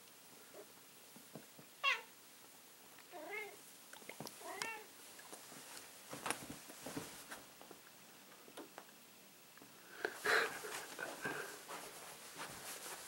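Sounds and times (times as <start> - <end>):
cat meowing: 1.8 - 2.1.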